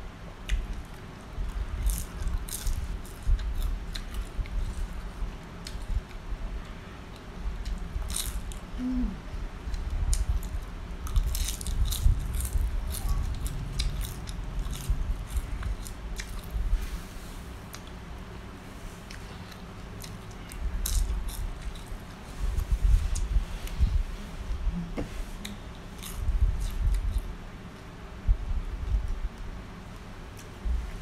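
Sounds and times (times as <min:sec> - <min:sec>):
chewing and crunching: 0:00.5 - 0:06.2, 0:07.6 - 0:08.7, 0:09.7 - 0:16.6, 0:19.0 - 0:22.2, 0:25.4 - 0:27.3.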